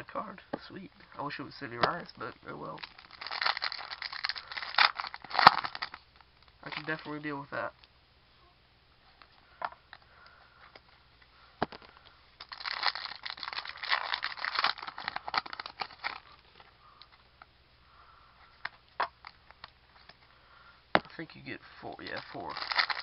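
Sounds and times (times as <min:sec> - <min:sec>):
card pack wrapper tearing: 0:02.8 - 0:06.0, 0:12.4 - 0:16.6, 0:22.1 - 0:23.0.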